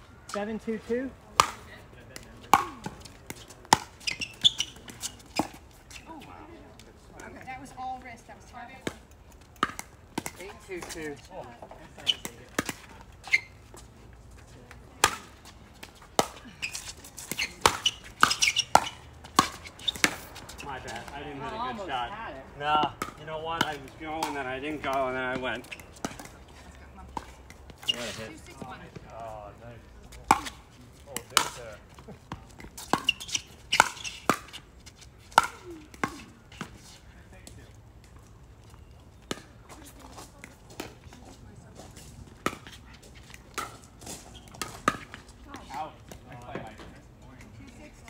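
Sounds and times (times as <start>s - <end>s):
ball bouncing on court: 1.4s - 5.6s, 14.9s - 21.3s, 22.8s - 26.4s, 30.2s - 31.7s, 32.3s - 34.6s.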